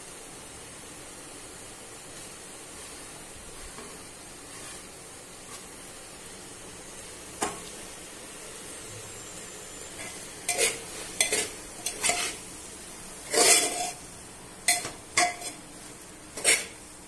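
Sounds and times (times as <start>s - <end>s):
metal spoon scraping pot: 10.0s - 12.4s, 13.2s - 14.0s, 14.7s - 15.6s, 16.3s - 16.8s.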